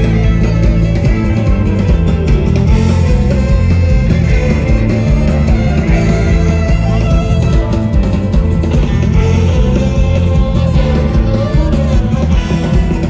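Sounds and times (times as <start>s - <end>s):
bass guitar: 0.0s - 13.0s
drum kit: 0.0s - 13.0s
electric guitars: 0.0s - 13.0s.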